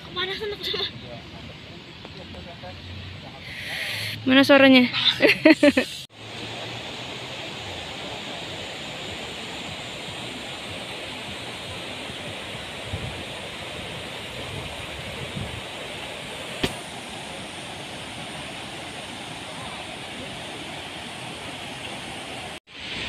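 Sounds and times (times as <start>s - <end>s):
water rushing: 5.4s - 23.0s.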